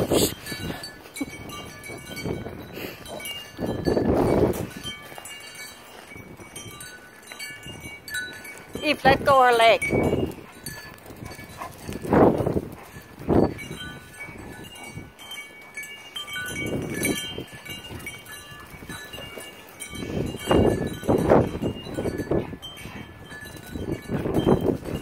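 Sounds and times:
dogs play-growling: 0:10.2 - 0:16.2, 0:21.4 - 0:24.9.

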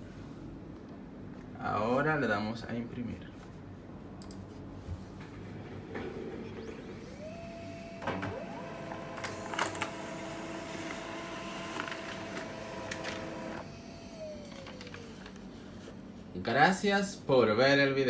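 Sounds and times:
laser printer motor whine: 0:06.0 - 0:15.8
sharp clicks of paper feed: 0:09.1 - 0:10.0, 0:10.8 - 0:13.6.

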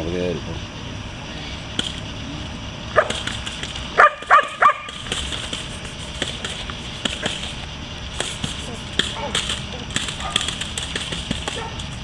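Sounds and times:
dog barking: 0:02.9 - 0:03.2, 0:04.0 - 0:05.0, 0:09.1 - 0:09.5, 0:10.2 - 0:10.5, 0:11.5 - 0:11.9.

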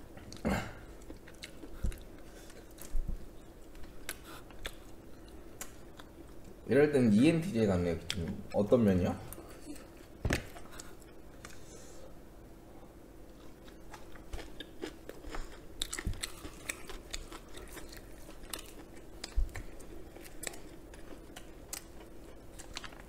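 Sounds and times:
chewing and crunching food: 0:00.2 - 0:06.6, 0:13.3 - 0:23.0.

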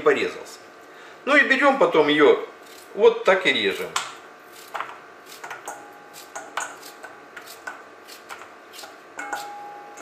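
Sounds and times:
knife cutting potato: 0:06.1 - 0:09.6.

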